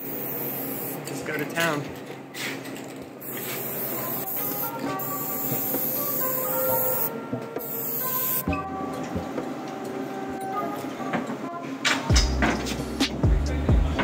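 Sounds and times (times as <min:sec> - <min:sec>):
spray paint can hissing: 0:00.0 - 0:01.0, 0:03.2 - 0:08.4
background music: 0:03.8 - 0:14.0.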